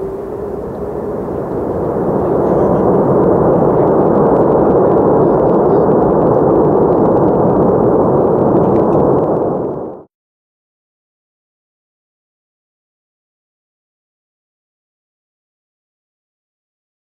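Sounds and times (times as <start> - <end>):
jet engines roaring in reverse thrust: 0.0 - 10.1.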